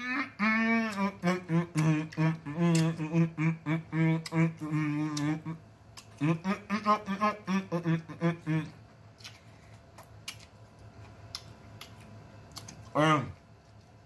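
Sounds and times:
man humming: 0.0 - 8.8.

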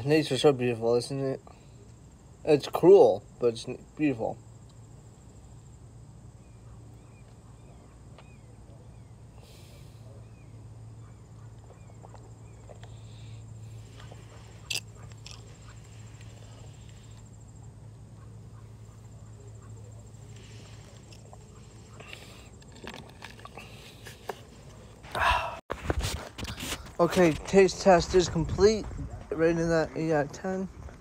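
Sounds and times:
faint chirps: 4.2 - 22.7.

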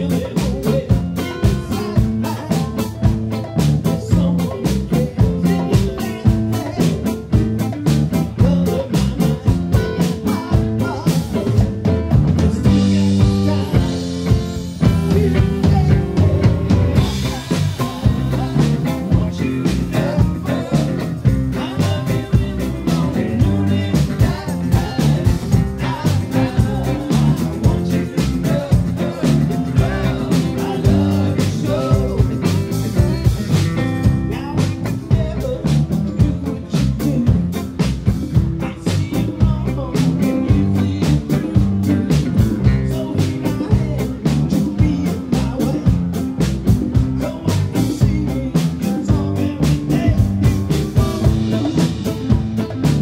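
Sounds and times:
bass guitar: 0.0 - 53.0
drum kit beat: 0.0 - 53.0
electric guitar: 0.0 - 53.0.

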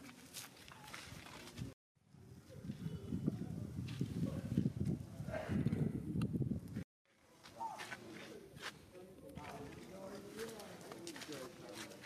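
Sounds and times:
wind buffeting microphone: 1.0 - 6.8.

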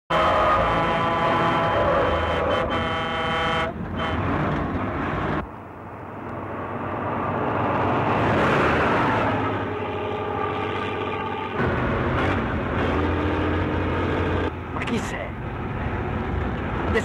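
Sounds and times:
truck air horn blast: 0.1 - 4.4
heavy truck engines and road noise: 0.1 - 17.0.

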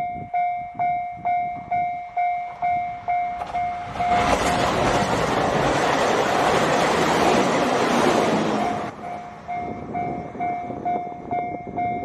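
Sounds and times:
level crossing alarm bell: 0.0 - 4.4, 8.6 - 12.0
train passing with rail noise: 0.0 - 12.0.

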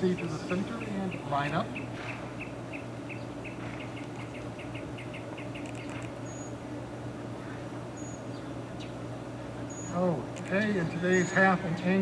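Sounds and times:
bird chirping: 0.0 - 6.6, 8.0 - 9.0, 9.6 - 10.0, 11.0 - 11.5
steady low hum: 0.0 - 12.0.

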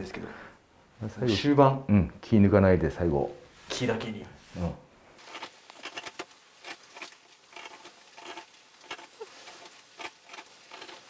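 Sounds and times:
gouge scraping wood: 5.2 - 11.0.

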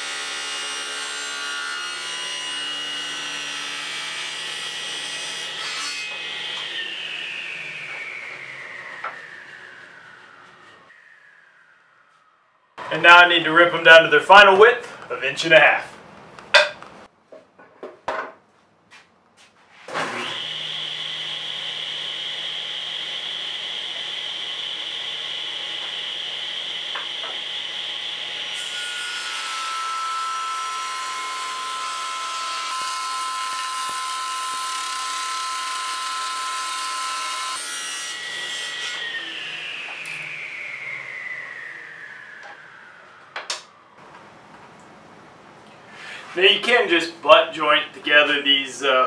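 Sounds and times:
table saw blade whining: 0.0 - 12.9, 19.9 - 43.8
saw ripping wood: 19.8 - 39.5.

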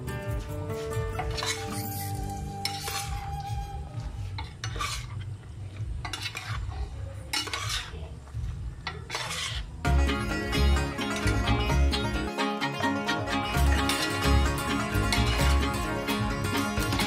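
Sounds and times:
metal spoon scraping wok: 0.7 - 3.6, 4.2 - 8.1, 8.8 - 12.0, 13.3 - 17.0.

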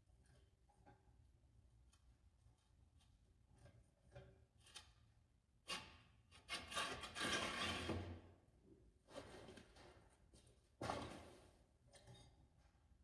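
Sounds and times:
wooden board scraping in steel channel: 6.8 - 8.2.

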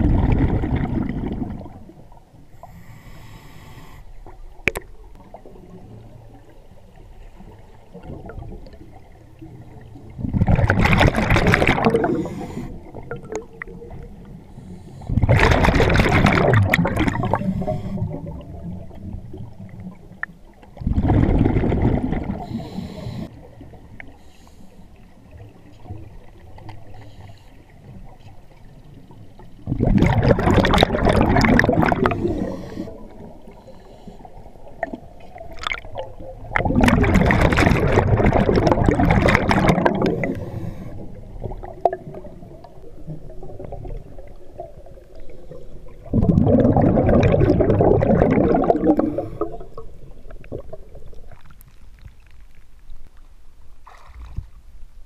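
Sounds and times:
underwater bubbles rumbling: 0.0 - 2.7, 4.2 - 24.3, 27.8 - 55.0
gurgling: 29.7 - 32.5, 46.1 - 49.6.

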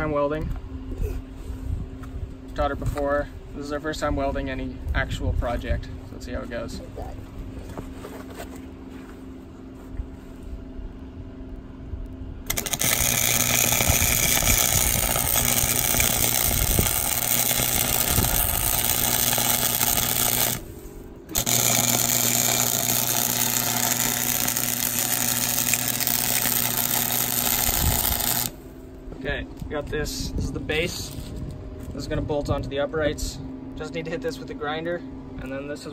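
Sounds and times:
low steady hum: 0.0 - 35.9
welder arc crackling: 12.5 - 28.6.

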